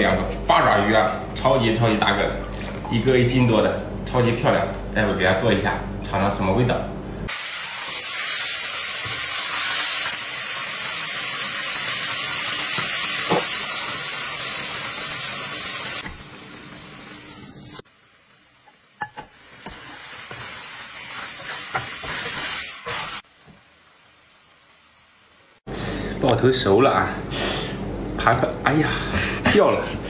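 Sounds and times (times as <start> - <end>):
octopus sizzling in hot oil: 7.3 - 25.7.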